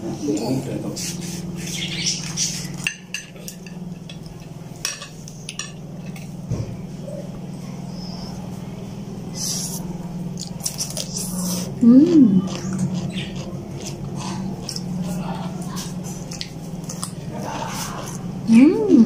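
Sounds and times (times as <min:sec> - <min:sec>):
utensils clinking on plate and pot: 0:02.8 - 0:06.2.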